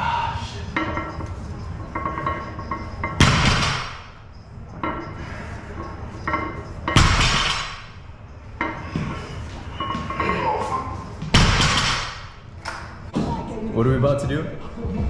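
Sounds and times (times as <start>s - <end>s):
barbell thudding on rubber floor: 6.9s - 7.8s, 11.2s - 12.3s.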